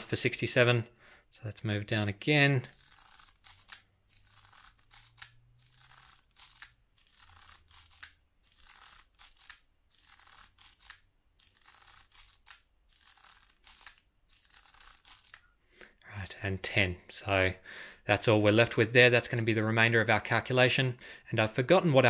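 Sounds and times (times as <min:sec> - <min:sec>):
mechanical calculator crank whirring: 0:02.6 - 0:15.4.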